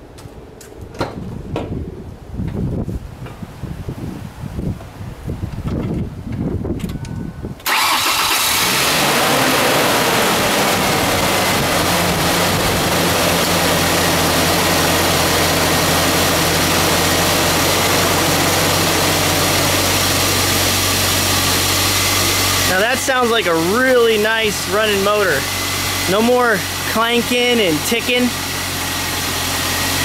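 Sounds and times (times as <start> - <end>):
car engine starter cranking: 7.6 - 9.7
car engine idling: 7.7 - 30.0.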